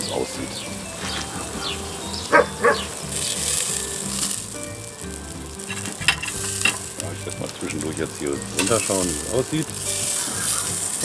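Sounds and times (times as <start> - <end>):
food sizzling on a grill: 0.0 - 11.0.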